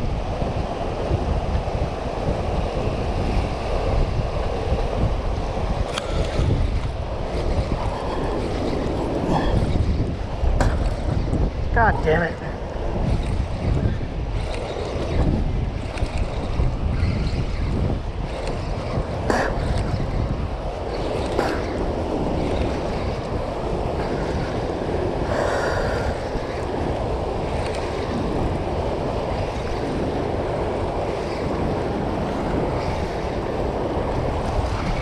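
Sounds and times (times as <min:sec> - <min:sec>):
wind buffeting microphone: 0:00.0 - 0:35.0.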